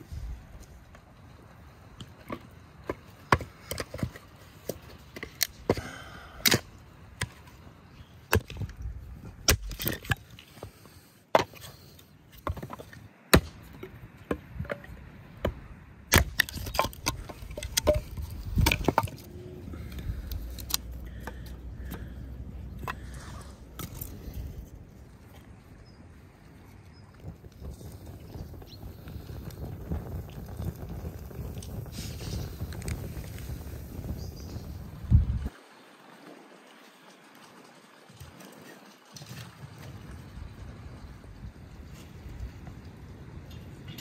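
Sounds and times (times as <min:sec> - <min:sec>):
axe chopping firewood: 0:02.3 - 0:07.4, 0:09.4 - 0:10.3, 0:11.3 - 0:11.7, 0:12.4 - 0:19.3
wood cracking apart: 0:09.4 - 0:10.4, 0:16.1 - 0:22.2.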